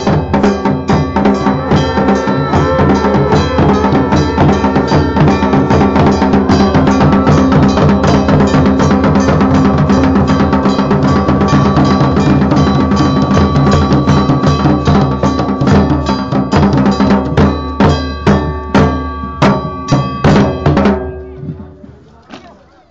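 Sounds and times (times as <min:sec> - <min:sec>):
held melody tones: 0:00.0 - 0:21.8
drums beating: 0:00.0 - 0:22.3.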